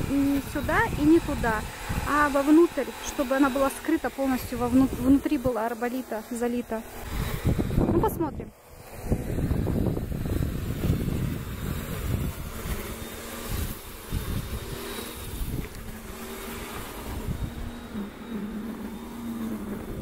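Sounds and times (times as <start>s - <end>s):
wind buffeting microphone: 0.0s - 2.7s, 7.0s - 18.1s.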